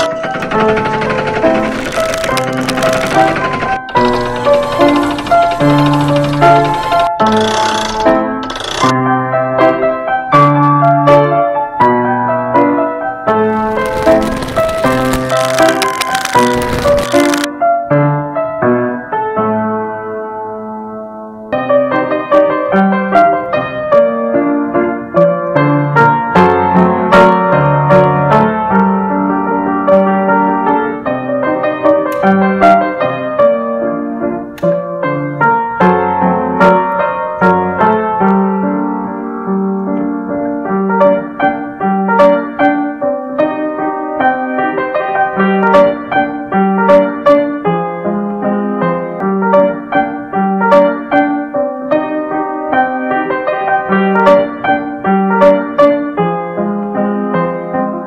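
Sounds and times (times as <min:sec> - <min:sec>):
solo piano music: 0:00.0 - 0:58.0.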